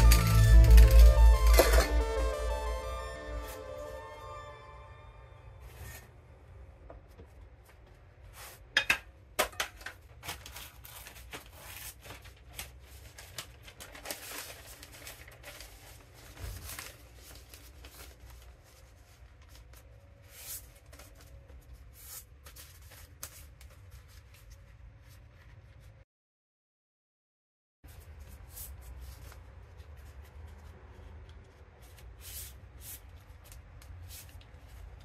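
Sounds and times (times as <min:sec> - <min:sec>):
paper crinkling and tearing: 0:10.0 - 0:25.9.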